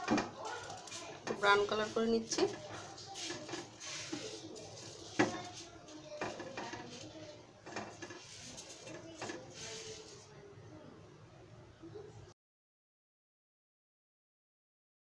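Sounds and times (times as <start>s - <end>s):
spatula scraping frying pan: 0.0s - 10.3s.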